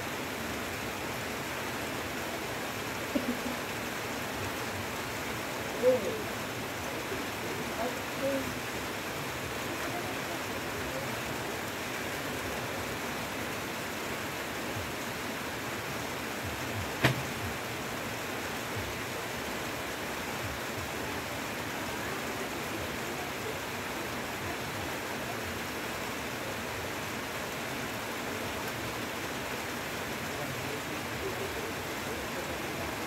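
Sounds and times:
heavy rain on foliage: 0:00.0 - 0:33.0
sharp tap: 0:17.0 - 0:17.3.

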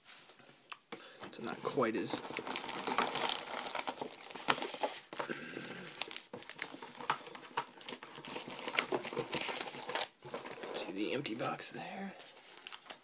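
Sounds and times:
wrapped card packs crinkling: 0:01.1 - 0:13.0.

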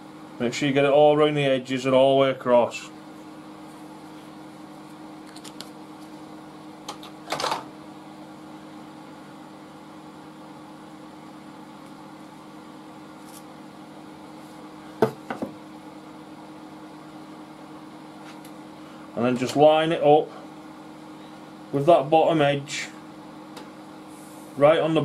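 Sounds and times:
steady low hum: 0:00.0 - 0:25.0
sharp knock on wood: 0:15.0 - 0:15.6.

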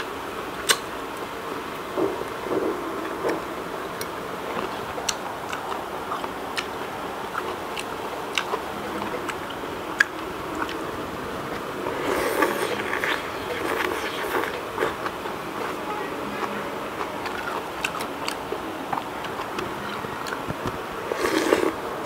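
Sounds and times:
steady background hiss: 0:00.0 - 0:22.0
mouth clicks and smacks: 0:00.6 - 0:00.9
person chewing food: 0:04.0 - 0:10.8, 0:11.5 - 0:15.8, 0:16.4 - 0:21.8.

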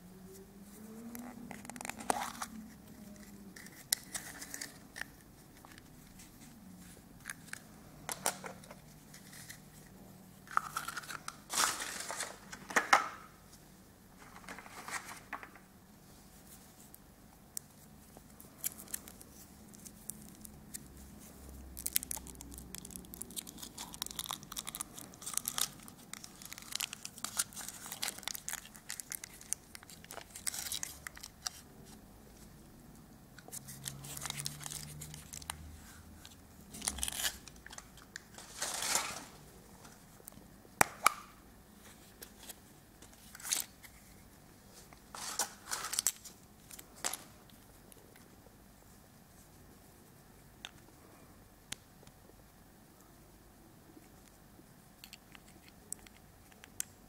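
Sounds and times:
foil wrapper crinkling and tearing: 0:21.7 - 0:31.6, 0:33.6 - 0:35.7, 0:36.7 - 0:39.4, 0:45.1 - 0:47.3.

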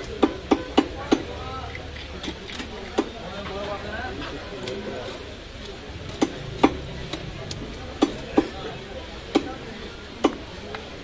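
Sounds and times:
blade chopping fish on wooden block: 0:07.9 - 0:08.6.

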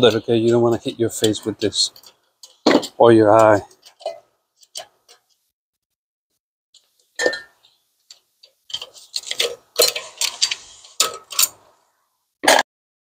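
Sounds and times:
metal clicks and scrapes: 0:00.0 - 0:05.4, 0:08.0 - 0:11.7.

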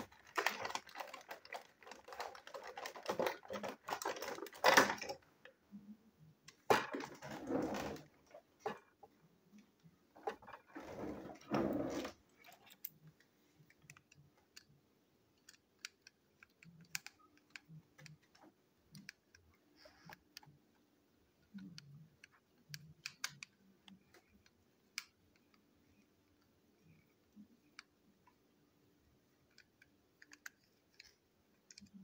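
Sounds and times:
plastic toy rustling: 0:00.0 - 0:05.5, 0:06.4 - 0:09.2, 0:10.1 - 0:14.8.

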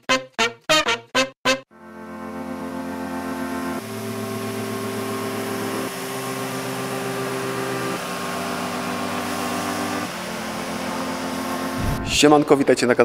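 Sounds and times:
floor scrubber motor whirring: 0:02.2 - 0:12.6.

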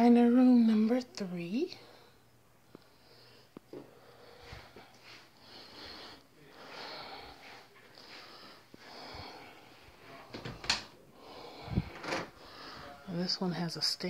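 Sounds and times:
person breathing hoarsely: 0:02.8 - 0:10.0, 0:11.1 - 0:13.0.

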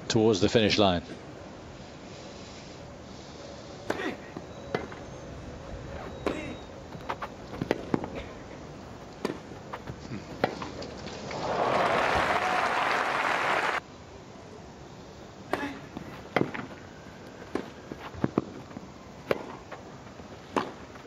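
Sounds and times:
tennis ball struck by racket: 0:09.2 - 0:09.5, 0:19.2 - 0:19.6, 0:20.5 - 0:20.8
crowd applauding: 0:11.3 - 0:13.8.

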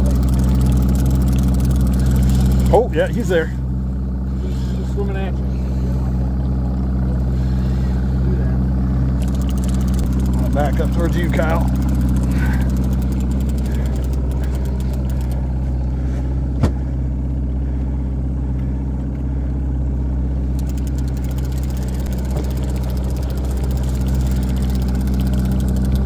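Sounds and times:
outboard motor running: 0:00.0 - 0:26.0.

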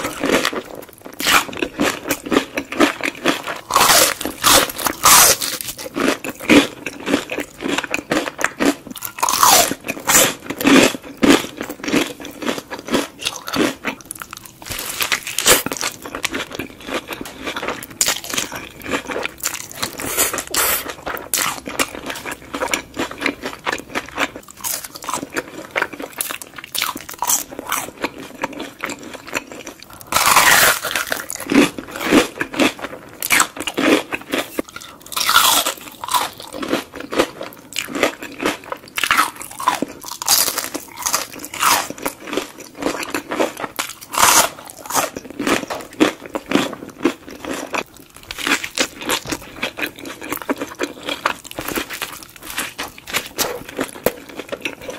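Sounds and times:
chewing: 0:00.0 - 0:54.9
crisp bites and crunches: 0:28.8 - 0:34.0.

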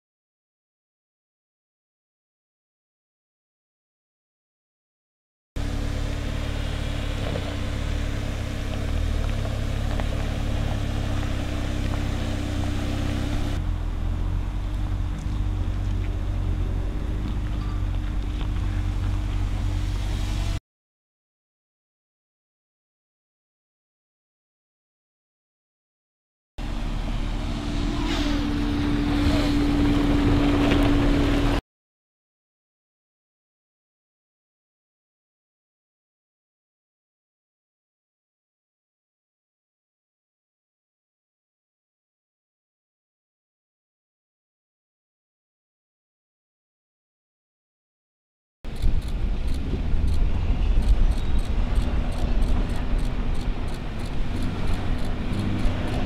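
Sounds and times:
engine running at low speed: 0:05.6 - 0:20.6, 0:26.6 - 0:31.6, 0:48.7 - 0:56.0
stones clicking under tyres: 0:08.6 - 0:12.1, 0:17.2 - 0:19.5, 0:48.7 - 0:56.0.

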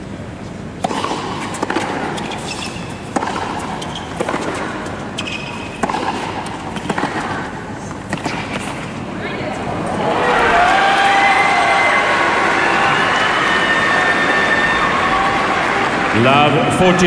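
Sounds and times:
tennis racket strikes: 0:00.8 - 0:09.1
tennis ball bounces: 0:00.8 - 0:10.0.

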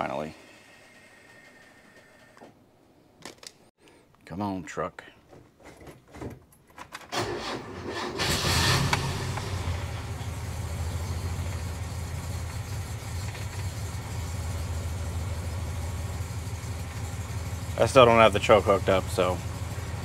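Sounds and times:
engine cranking on starter: 0:07.1 - 0:20.0
engine revving and idling: 0:07.4 - 0:20.0.

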